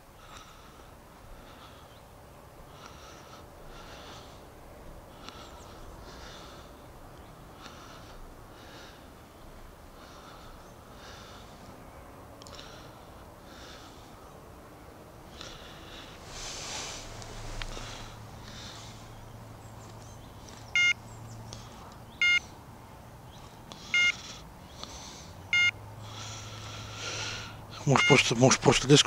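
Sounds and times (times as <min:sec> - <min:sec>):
man breathing heavily through nose: 0:00.0 - 0:29.0.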